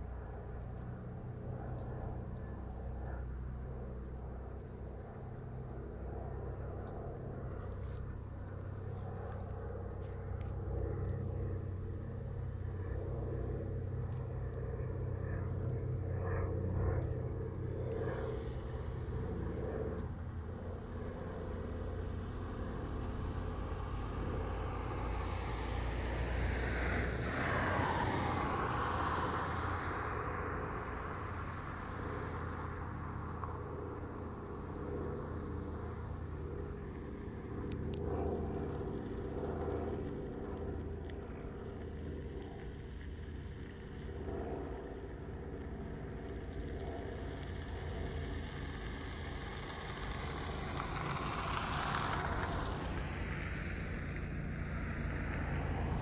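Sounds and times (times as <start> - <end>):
propeller plane engines droning: 0.0 - 56.0.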